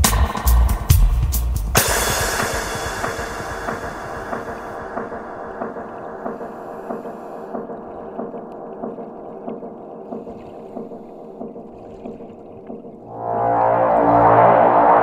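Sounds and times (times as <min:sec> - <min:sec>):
electronic music with beat: 0:00.0 - 0:15.0.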